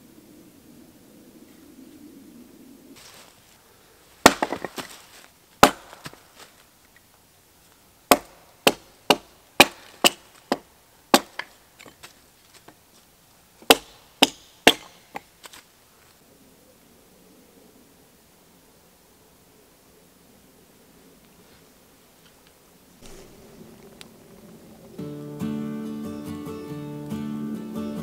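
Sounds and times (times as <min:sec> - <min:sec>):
hatchet chopping wood: 0:04.2 - 0:05.0, 0:05.6 - 0:06.3, 0:08.1 - 0:12.0, 0:13.6 - 0:15.3
wood pieces clattering: 0:04.2 - 0:06.5, 0:09.6 - 0:12.8.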